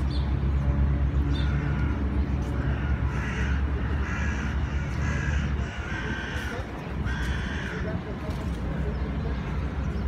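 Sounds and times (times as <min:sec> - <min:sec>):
crows cawing: 0:01.4 - 0:02.0, 0:02.6 - 0:08.0.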